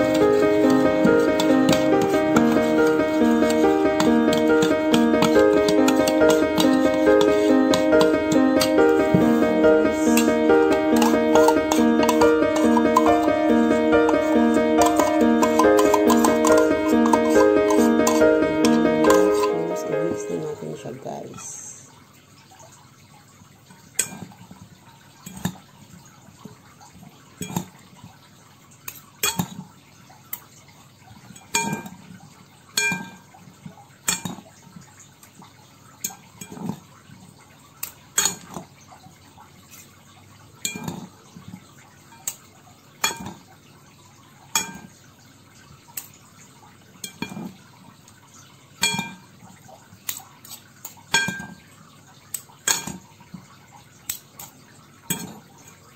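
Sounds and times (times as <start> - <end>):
metal spoons clinking in bowl: 14.0 - 19.6, 48.8 - 49.2.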